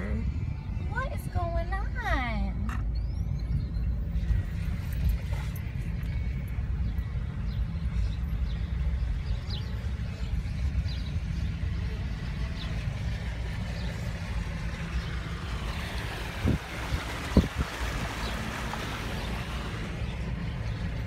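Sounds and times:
car driving through floodwater: 12.2 - 21.0.

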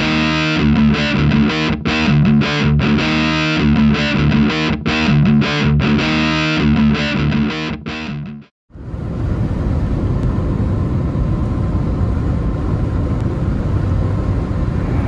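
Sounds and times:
distorted electric guitar music: 0.0 - 8.5
road and engine rumble: 8.7 - 15.0.

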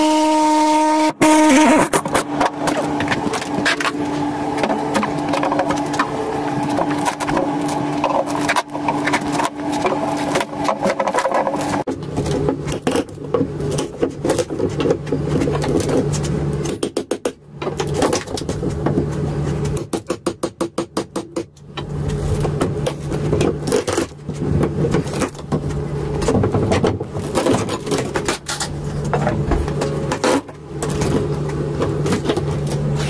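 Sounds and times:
reciprocating saw cutting wood: 0.0 - 11.9.

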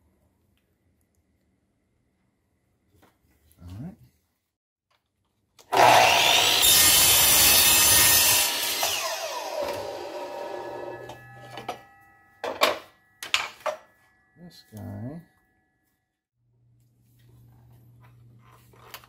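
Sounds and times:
miter saw cutting: 5.7 - 11.3
saw blade spinning down: 5.7 - 11.8.

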